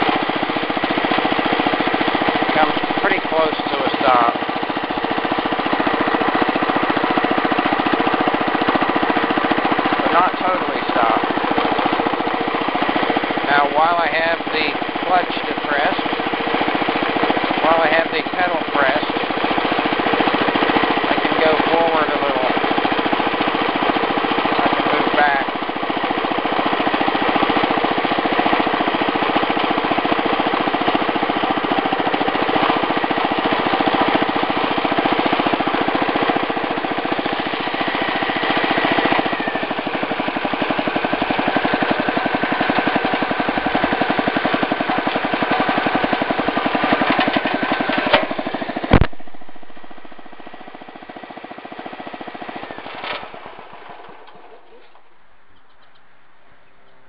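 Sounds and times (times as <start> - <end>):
garden tractor engine running: 0.0 - 57.0
sharp click: 48.2 - 49.4.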